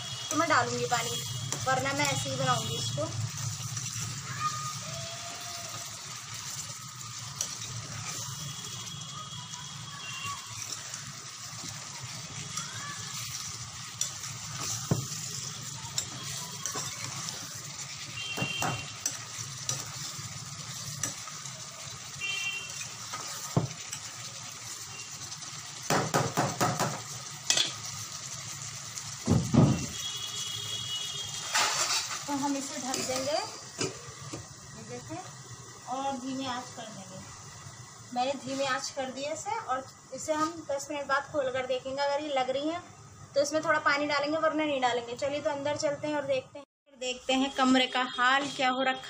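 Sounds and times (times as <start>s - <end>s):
vegetables sizzling in a pan: 0.0s - 49.0s
metal spoon scraping a pan: 0.2s - 4.3s, 5.7s - 8.6s, 10.4s - 21.6s, 22.4s - 24.8s, 27.4s - 27.9s, 31.2s - 34.0s.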